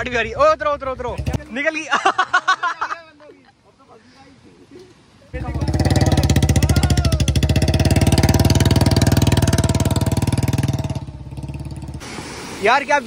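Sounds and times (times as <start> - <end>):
motorcycle engine running: 0.0 - 1.5, 5.4 - 12.0.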